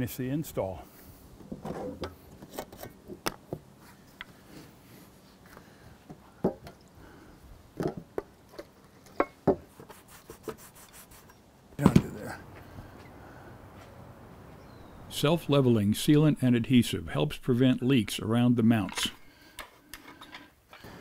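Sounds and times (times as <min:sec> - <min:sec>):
cloth rubbing on rubber roof: 0:09.6 - 0:11.3.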